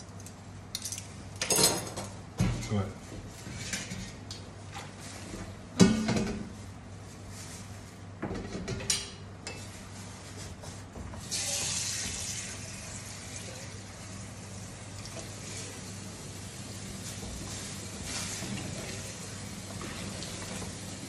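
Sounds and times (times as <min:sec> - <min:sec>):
tap water running into sink: 0:11.3 - 0:13.9.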